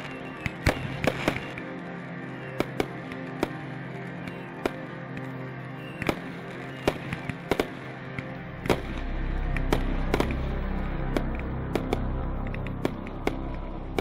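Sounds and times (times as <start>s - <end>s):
fireworks bangs and crackles: 0.0s - 1.6s, 2.6s - 3.6s, 6.0s - 7.9s, 9.6s - 14.0s
background music with low tones: 0.0s - 14.0s.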